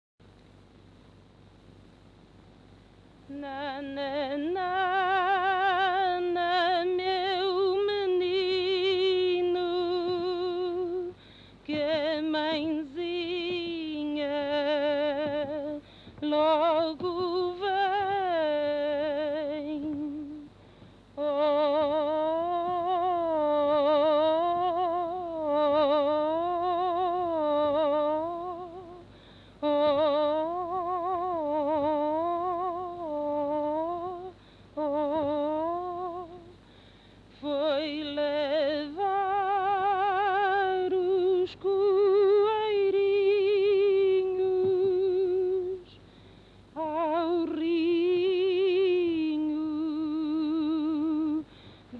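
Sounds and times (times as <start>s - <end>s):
woman singing lullaby: 3.3s - 20.6s, 21.2s - 36.6s, 37.3s - 46.1s, 46.8s - 51.6s
short breaths: 11.2s - 11.6s, 15.8s - 16.2s, 20.6s - 21.1s, 29.1s - 29.6s, 34.4s - 34.7s, 36.6s - 37.3s, 46.0s - 46.7s, 51.4s - 51.9s.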